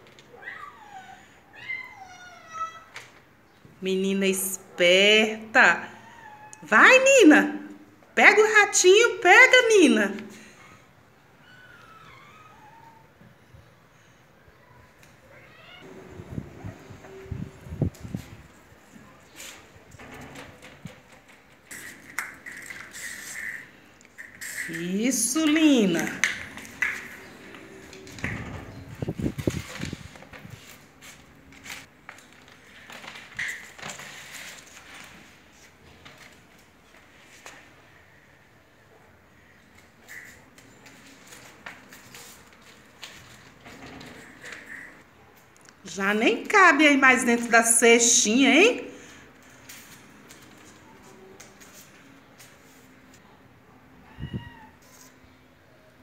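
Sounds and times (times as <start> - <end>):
cat meowing: 15.3 - 15.9, 54.0 - 54.9.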